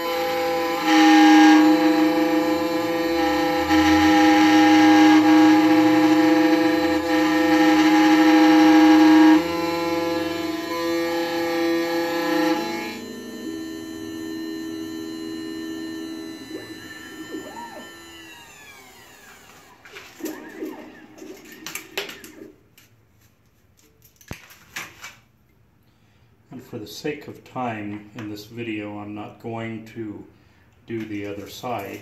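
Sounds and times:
key-cutting machine motor whine: 0:00.0 - 0:22.5.

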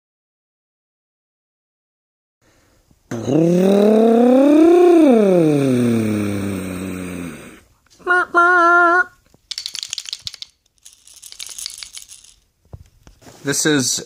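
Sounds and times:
man humming short notes: 0:03.1 - 0:09.2
man imitating car engine: 0:03.1 - 0:09.2
kernels rattling in wooden toy car: 0:09.4 - 0:12.5.

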